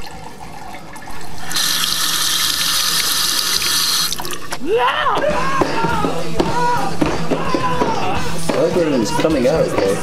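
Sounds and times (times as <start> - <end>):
tap water running: 0.0 - 4.6.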